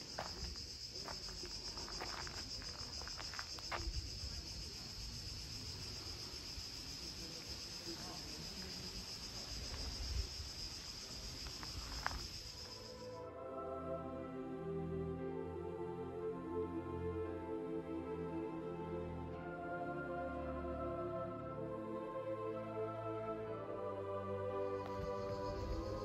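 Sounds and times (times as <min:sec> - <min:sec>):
insects chirring: 0:00.0 - 0:15.0, 0:22.5 - 0:26.0.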